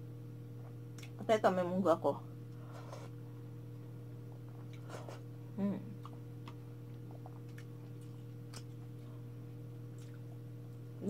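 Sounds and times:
low electrical hum: 0.0s - 11.0s
person humming mm: 5.0s - 6.0s.

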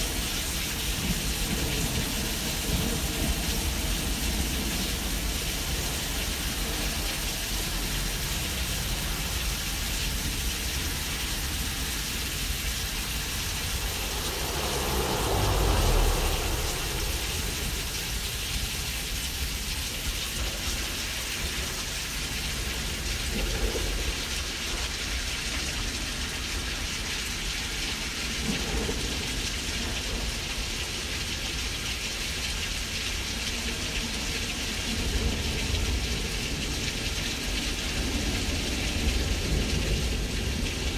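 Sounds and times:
rain-like hiss: 0.0s - 40.9s
thunder rumbling: 10.3s - 20.1s.

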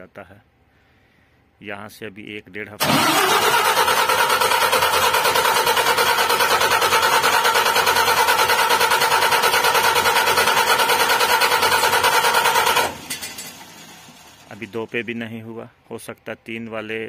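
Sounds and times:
starter motor cranking diesel engine: 2.8s - 14.8s.

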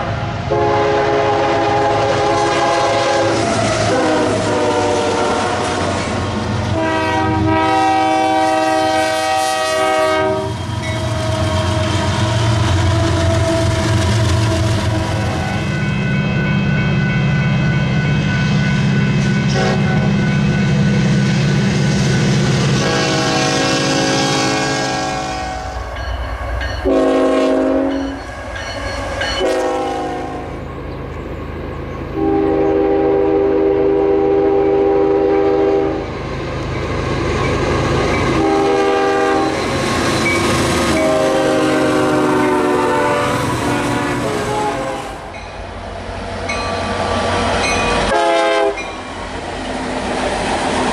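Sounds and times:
train air horn blasts: 0.0s - 6.0s, 6.6s - 16.7s, 19.2s - 20.9s, 22.5s - 25.9s, 26.8s - 28.2s, 29.2s - 30.6s, 32.2s - 36.0s, 38.3s - 39.7s, 40.3s - 45.4s, 48.0s - 48.9s
train wheels clacking on rails: 36.4s - 44.5s, 46.4s - 50.9s.

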